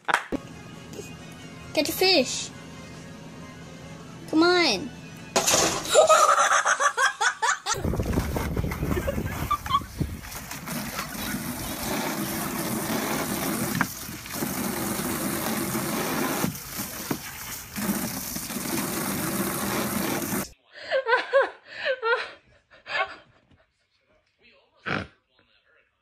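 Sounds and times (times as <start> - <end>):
hose water splashing into pool: 7.8 - 20.5.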